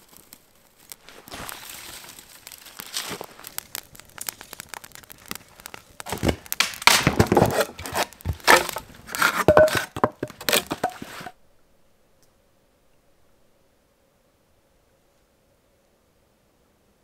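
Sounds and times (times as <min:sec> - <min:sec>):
sticks snapping and crunching: 0:00.0 - 0:11.3.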